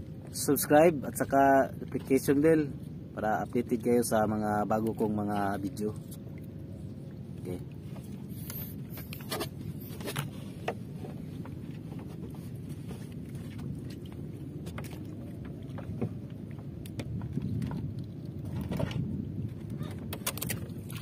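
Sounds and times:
low water noise: 0.0s - 21.0s
boat knocks and clicks: 8.8s - 21.0s.

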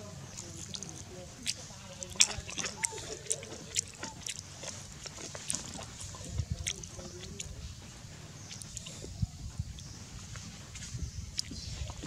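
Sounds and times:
monkey picking at dry litter: 0.3s - 7.6s.

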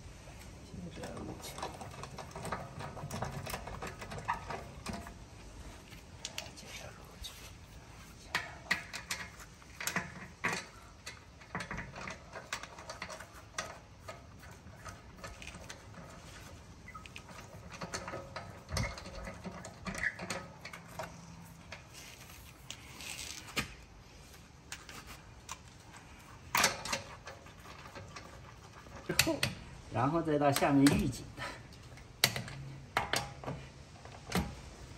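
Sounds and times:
hand tools tapping metal: 26.5s - 33.7s.

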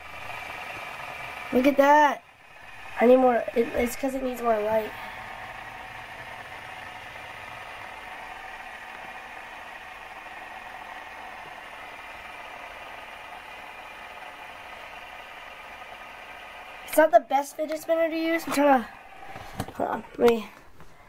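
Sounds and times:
fidget spinner whirring: 0.0s - 20.8s.

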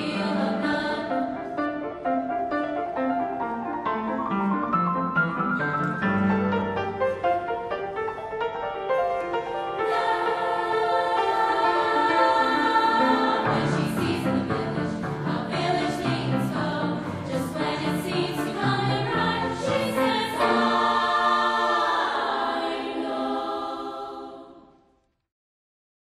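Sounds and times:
choir singing: 0.0s - 2.3s, 9.4s - 25.0s.

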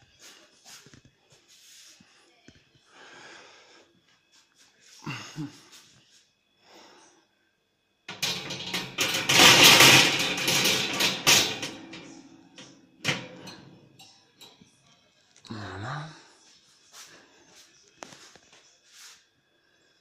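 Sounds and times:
wire grill rack rattling on metal: 8.1s - 14.2s.

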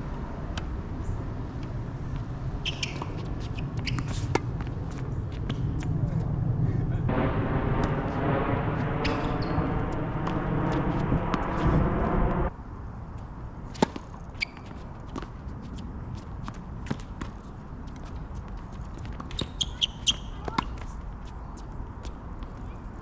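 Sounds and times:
loud rushing noise: 7.0s - 12.5s.

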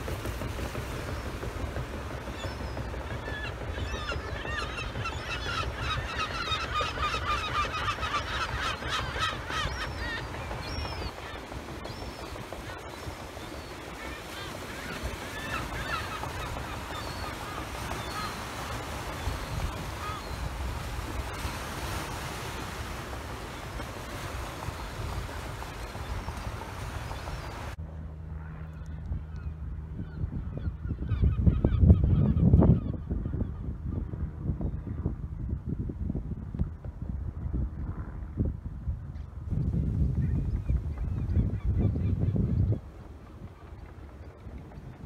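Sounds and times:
flock of birds calling: 2.3s - 27.8s
steady low rumble: 18.2s - 45.0s.

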